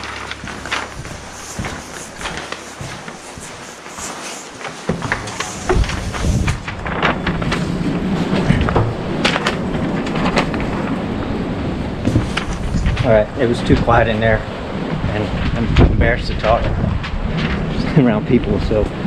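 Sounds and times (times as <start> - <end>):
footsteps: 0.0 - 10.8, 12.0 - 14.0
wind rumbling on microphone: 0.0 - 19.0.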